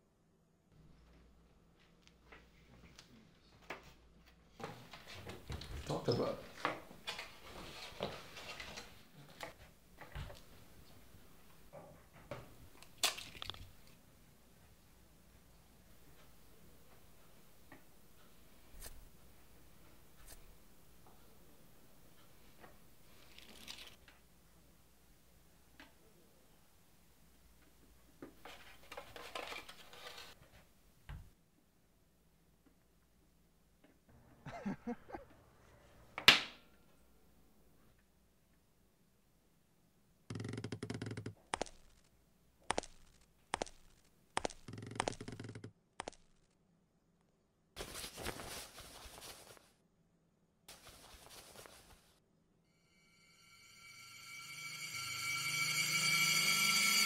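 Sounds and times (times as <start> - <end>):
fabric rustling: 47.8 - 49.8, 50.7 - 52.2
music with held tones: 53.2 - 57.0.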